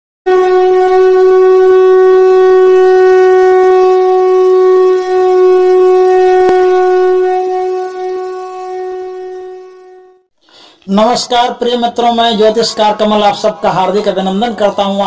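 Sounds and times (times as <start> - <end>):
conch shell blown: 0.3 - 10.3.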